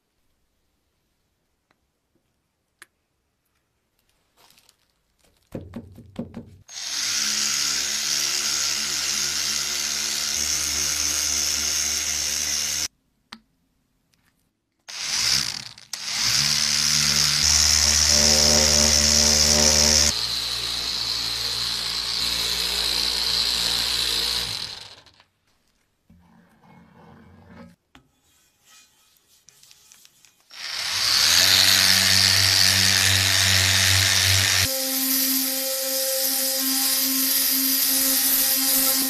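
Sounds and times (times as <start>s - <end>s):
angle polisher whirring: 6.7s - 12.9s, 14.9s - 25.2s, 30.5s - 39.0s.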